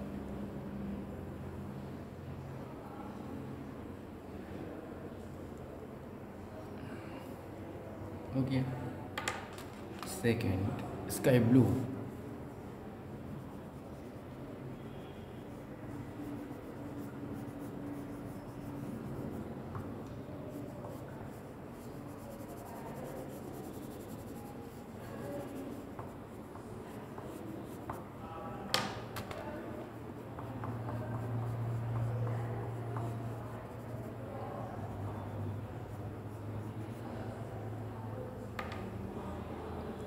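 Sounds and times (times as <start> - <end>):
crayon scribbling on paper: 20.5 - 26.2.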